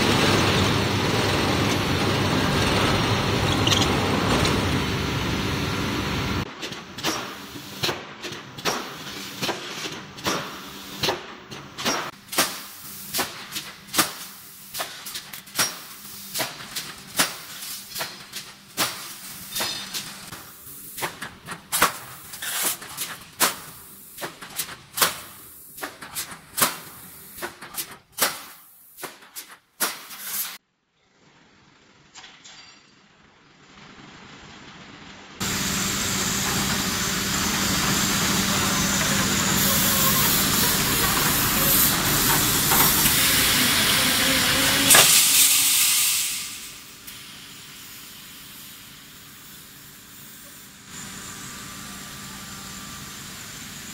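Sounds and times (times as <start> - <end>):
welding machine loud steady noise: 0.0 - 9.6, 12.0 - 27.6, 35.4 - 53.9
welding machine sharp clacks: 6.6 - 30.6, 35.4 - 47.6.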